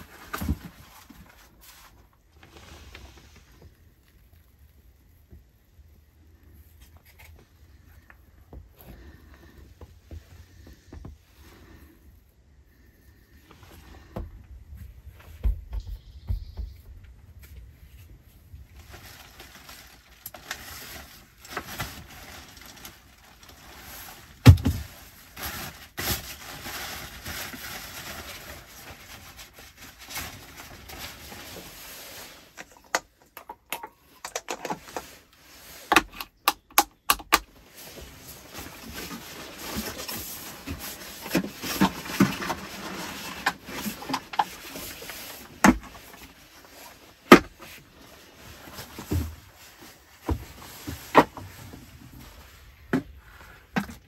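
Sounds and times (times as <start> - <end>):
bag and packaging rustling: 0.0 - 4.6, 17.4 - 32.9, 37.5 - 54.0.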